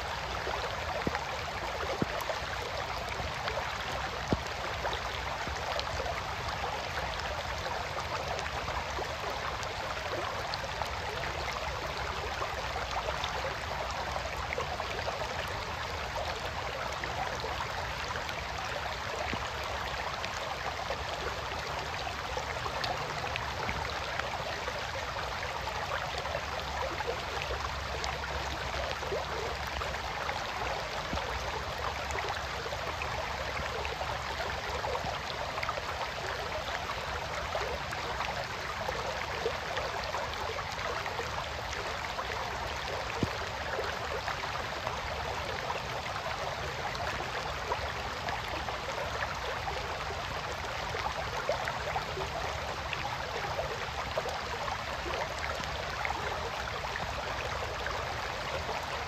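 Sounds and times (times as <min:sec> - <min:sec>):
creek babbling: 0:00.0 - 0:59.0
soft rain falling: 0:00.0 - 0:59.0.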